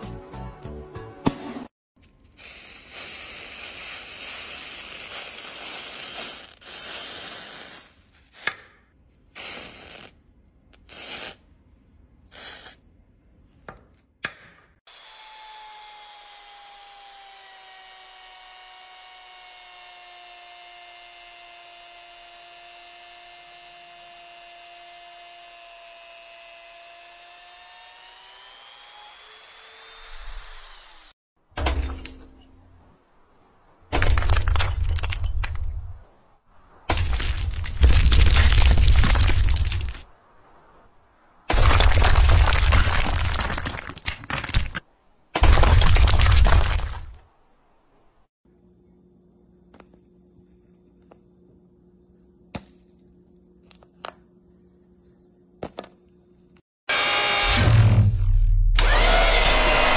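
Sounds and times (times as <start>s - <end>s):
rotary tool whining: 14.9s - 31.2s, 56.9s - 59.9s.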